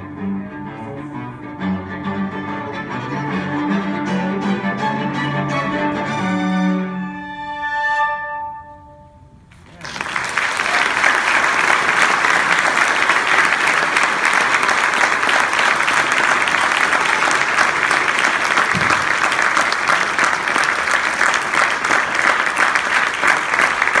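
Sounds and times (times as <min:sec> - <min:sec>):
audience applauding: 0:09.6 - 0:24.0.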